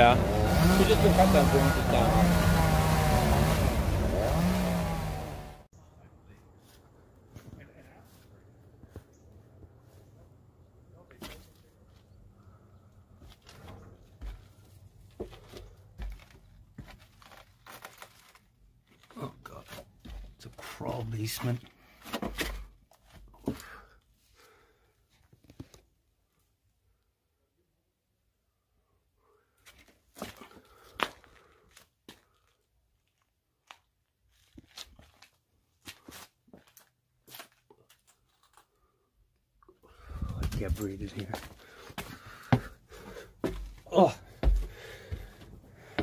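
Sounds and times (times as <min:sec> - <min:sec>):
footsteps on cellar steps: 0:13.2 - 0:17.5, 0:19.6 - 0:20.8, 0:40.4 - 0:46.0
debris crunching underfoot: 0:13.2 - 0:20.5.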